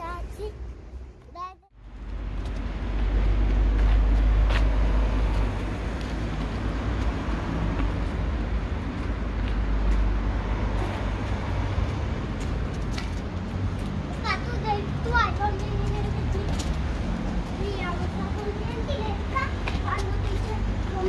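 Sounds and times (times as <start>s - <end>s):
street traffic rumble: 0.0s - 21.0s.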